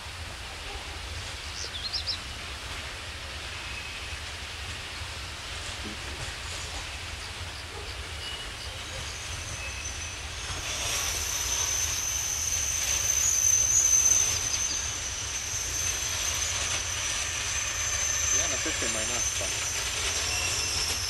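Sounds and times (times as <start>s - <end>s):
high wheel squeal: 8.0s - 21.0s.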